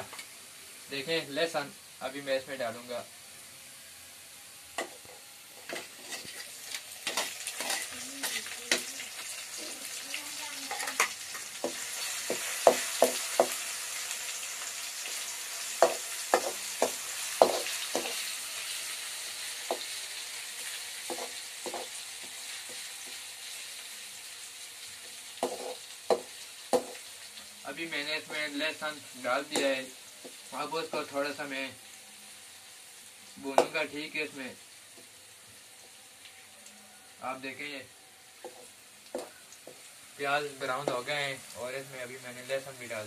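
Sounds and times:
paste sizzling in hot oil: 0:00.0 - 0:43.0
metal spoon knocking on pan: 0:11.0 - 0:13.6, 0:15.8 - 0:18.2, 0:21.1 - 0:21.9, 0:25.4 - 0:27.0, 0:38.4 - 0:39.8.

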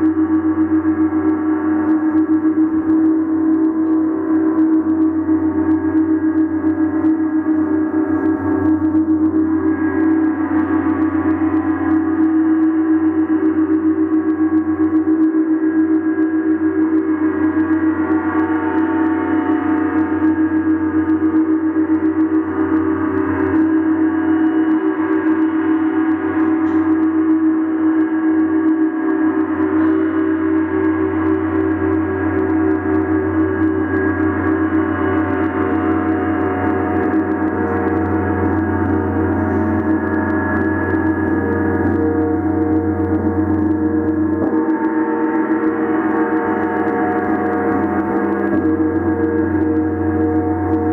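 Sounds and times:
large gong ringing: 0:15.7 - 0:50.9.

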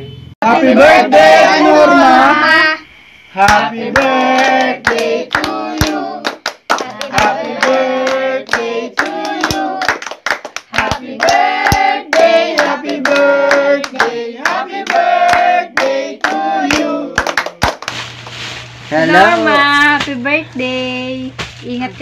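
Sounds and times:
family singing a birthday tune: 0:00.4 - 0:17.6
hand claps: 0:03.4 - 0:18.0.

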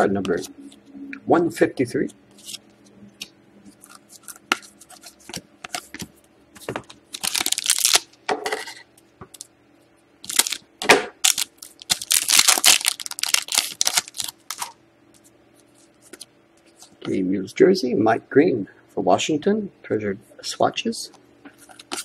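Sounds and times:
foil wrapper crinkling and tearing: 0:07.1 - 0:08.1, 0:10.2 - 0:10.6, 0:11.2 - 0:14.8.

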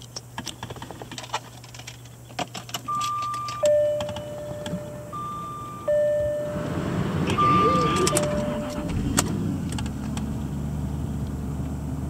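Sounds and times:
keys jangling in ignition: 0:01.1 - 0:05.2, 0:07.3 - 0:10.0
two-pitch dashboard warning chime: 0:02.9 - 0:09.1.

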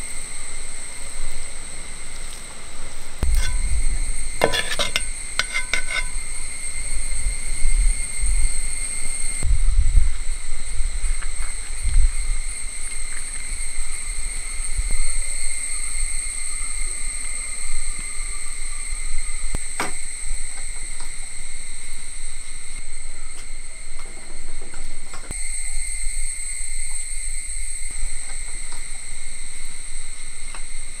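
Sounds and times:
low rumble: 0:03.0 - 0:05.4, 0:06.1 - 0:16.1
high-pitched insect trilling: 0:03.2 - 0:24.6, 0:25.3 - 0:31.0.

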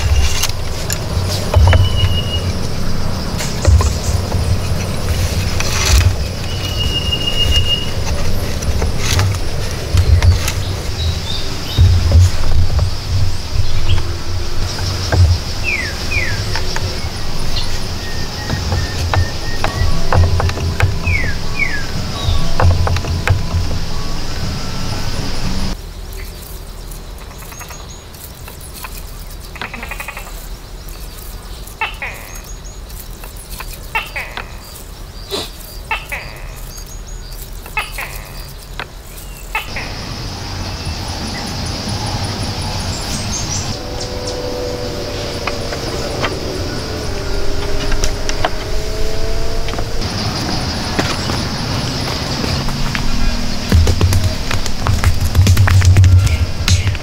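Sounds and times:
wooden sticks knocking: 0:00.0 - 0:25.8, 0:49.6 - 0:57.0
faint high chirping: 0:00.0 - 0:54.4
high insect drone: 0:00.0 - 0:57.0
falling bird whistles: 0:01.6 - 0:02.6, 0:06.4 - 0:08.0.

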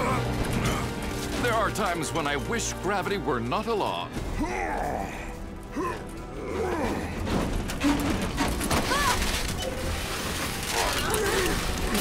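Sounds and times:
dramatic background music: 0:00.0 - 0:12.0
metallic clanks and creaks: 0:06.0 - 0:12.0.

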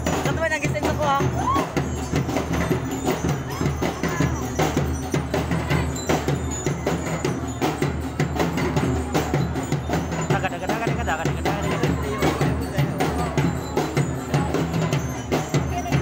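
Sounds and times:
bell lyres ringing: 0:00.0 - 0:16.0
marching drums: 0:00.0 - 0:16.0.

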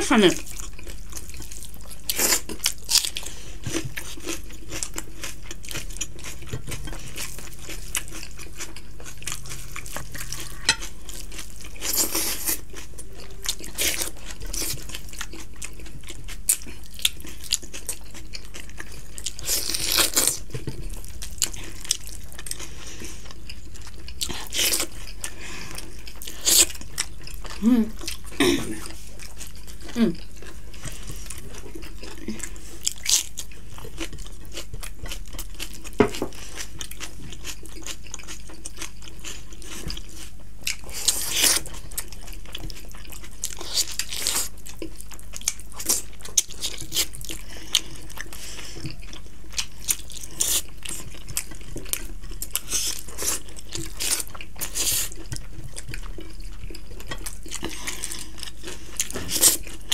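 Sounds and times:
steady low hum: 0:05.8 - 0:17.2.

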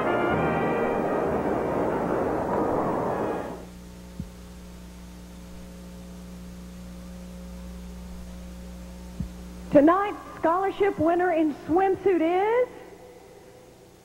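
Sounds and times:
brass band music: 0:00.0 - 0:03.7
electrical mains hum: 0:00.0 - 0:14.0.

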